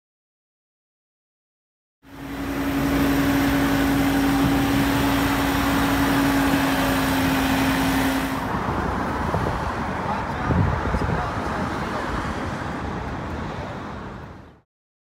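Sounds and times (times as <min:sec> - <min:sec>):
engine droning: 0:02.0 - 0:08.9
road traffic: 0:02.0 - 0:14.6.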